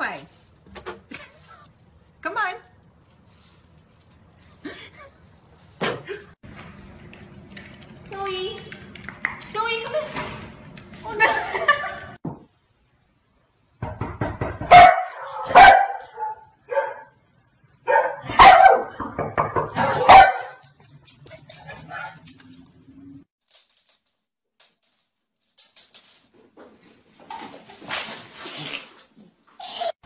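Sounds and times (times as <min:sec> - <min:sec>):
dog barking: 0:14.7 - 0:17.2, 0:17.8 - 0:19.0, 0:19.7 - 0:20.6, 0:21.8 - 0:22.2.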